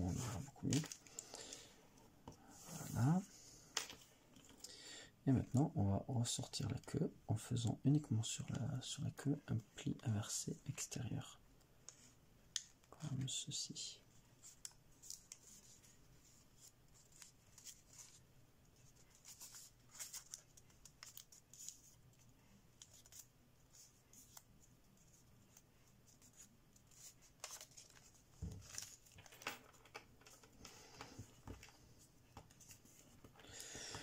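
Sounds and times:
paper rustling and crinkling: 0:00.0 - 0:01.2, 0:14.4 - 0:18.2, 0:18.8 - 0:22.0, 0:22.7 - 0:33.4.

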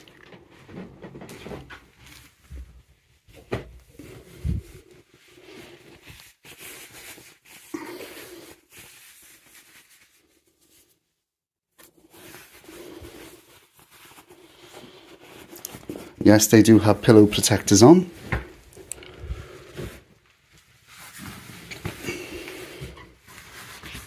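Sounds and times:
fabric rustling: 0:00.0 - 0:11.1, 0:11.7 - 0:17.2, 0:17.8 - 0:24.0.

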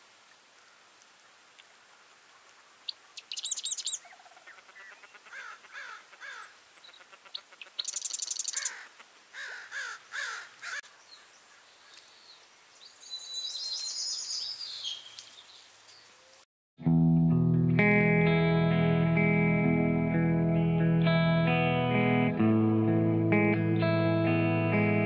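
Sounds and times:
high rapid bird trills: 0:02.8 - 0:12.2
birds calling and singing: 0:02.8 - 0:16.4.

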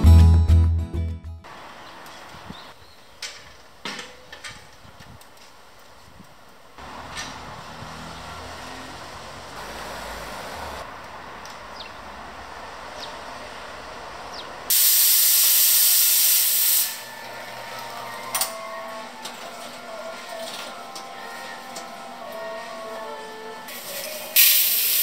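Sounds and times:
espresso machine steam hiss: 0:14.7 - 0:17.2, 0:23.7 - 0:25.0.

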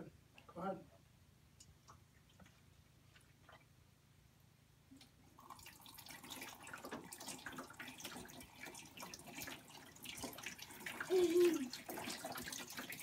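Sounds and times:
water pouring from a cup: 0:05.3 - 0:13.0
water trickling and splashing: 0:05.3 - 0:13.0.

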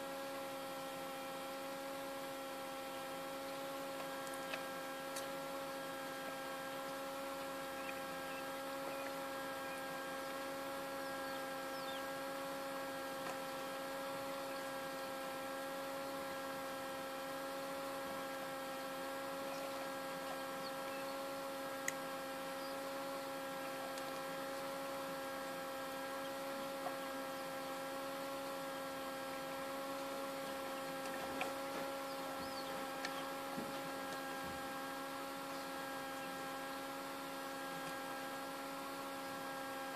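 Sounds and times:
incubator fan motor humming: 0:00.0 - 0:39.9.

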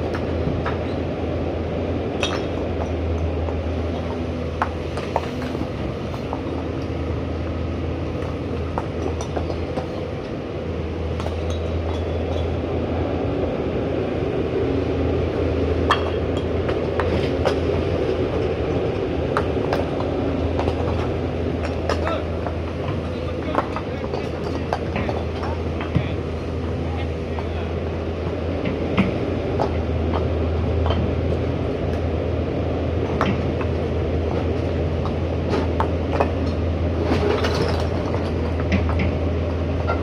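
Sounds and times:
excavator engine droning: 0:00.0 - 0:40.0
hydraulics working: 0:00.0 - 0:40.0.

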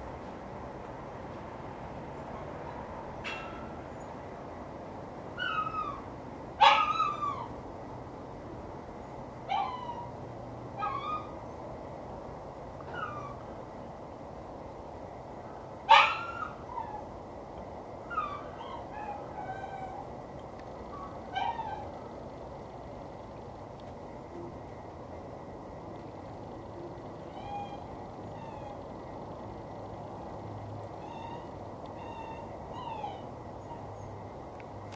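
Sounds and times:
steady background hum: 0:00.0 - 0:34.9
dog barking and yelping: 0:05.4 - 0:06.0, 0:06.6 - 0:07.5, 0:09.5 - 0:10.1, 0:10.8 - 0:11.4, 0:12.9 - 0:13.4, 0:15.9 - 0:17.1, 0:18.1 - 0:20.1, 0:20.9 - 0:22.2, 0:27.2 - 0:28.9, 0:31.0 - 0:34.0.

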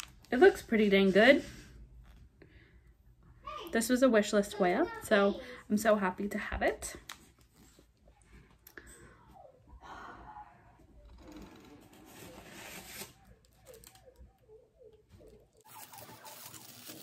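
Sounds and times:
faint rustling of packaging: 0:06.8 - 0:09.4, 0:11.3 - 0:17.0.

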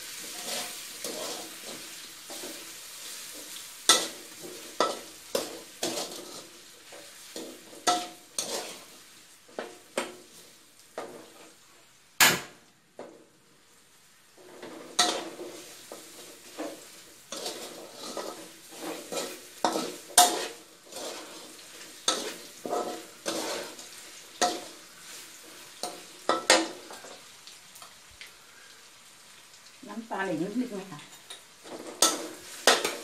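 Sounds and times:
metal spatula scraping a wok: 0:00.0 - 0:11.6, 0:14.4 - 0:27.2, 0:31.2 - 0:33.0
faint sizzle: 0:00.0 - 0:33.0.

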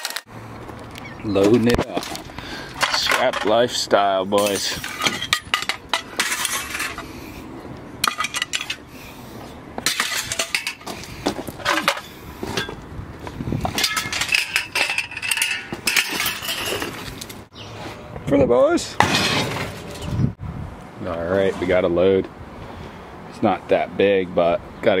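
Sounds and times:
scrap metal clanking: 0:01.7 - 0:07.2, 0:08.0 - 0:08.9, 0:09.8 - 0:12.8, 0:13.6 - 0:18.0, 0:19.0 - 0:20.2.

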